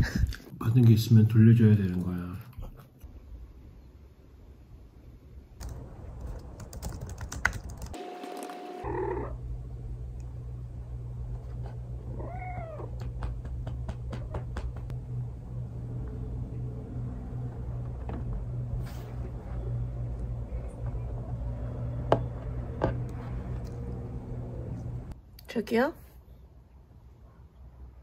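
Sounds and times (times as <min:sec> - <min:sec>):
cat meowing: 0:12.1 - 0:13.0.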